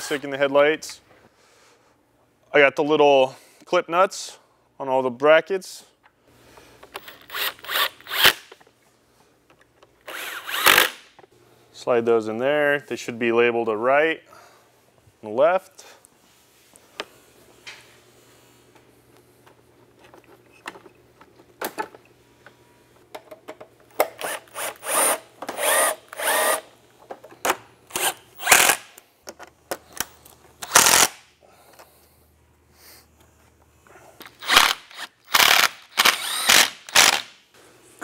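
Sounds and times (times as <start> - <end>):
cordless drill driving screws: 7.0 - 8.4, 10.0 - 11.0, 24.0 - 26.6, 27.9 - 28.9, 34.4 - 37.3.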